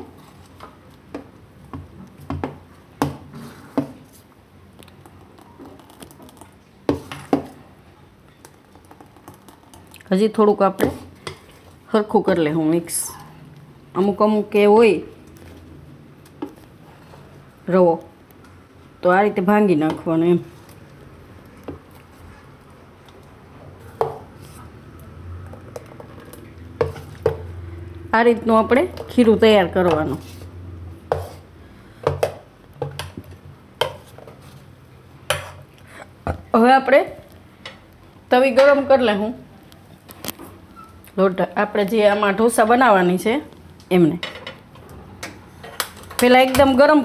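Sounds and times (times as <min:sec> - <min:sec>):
ladle stirring batter: 0:00.0 - 0:07.7, 0:19.7 - 0:27.5, 0:28.5 - 0:36.2.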